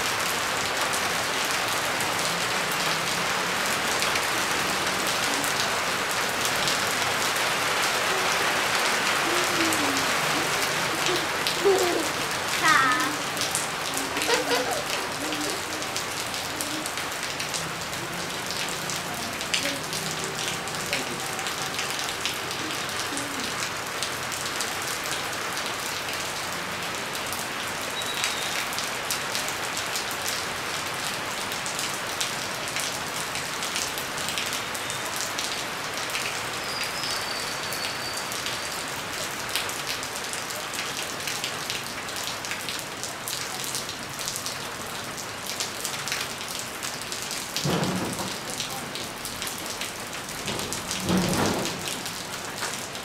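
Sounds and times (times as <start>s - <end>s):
rain on concrete and puddles: 0.0s - 53.0s.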